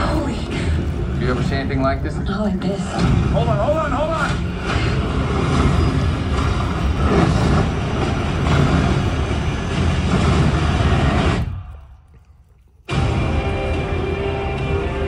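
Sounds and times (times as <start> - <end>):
truck engine rumbling: 0.0 - 15.0
explosions: 4.3 - 11.6.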